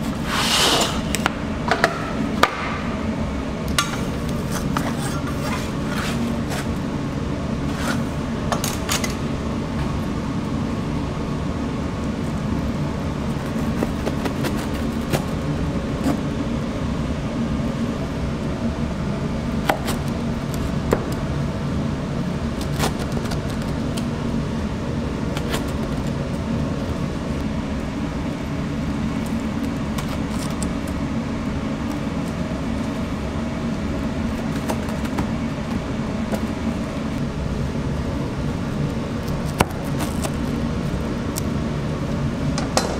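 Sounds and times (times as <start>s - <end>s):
kitchen machinery hum: 0.0s - 42.9s
knife cutting pizza: 13.2s - 16.3s, 22.6s - 24.1s, 34.2s - 35.4s.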